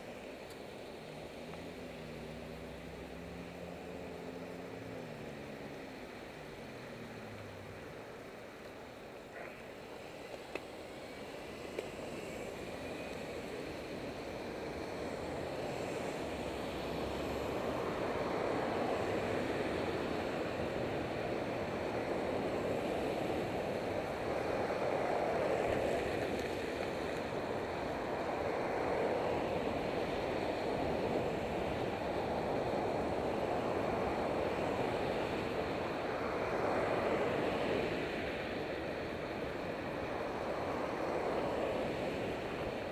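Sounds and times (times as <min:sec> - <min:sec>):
cars passing on highway: 0:00.0 - 0:42.9.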